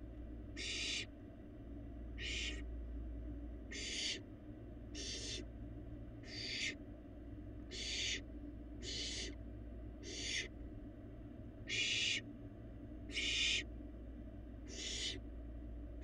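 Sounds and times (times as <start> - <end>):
low electrical hum: 0.0 - 16.0
barn owl hissing call: 0.6 - 1.1, 2.2 - 2.6, 3.7 - 4.2, 4.9 - 5.4, 6.2 - 6.8, 7.7 - 8.2, 8.8 - 9.4, 10.0 - 10.5, 11.6 - 12.2, 13.1 - 13.7, 14.7 - 15.2.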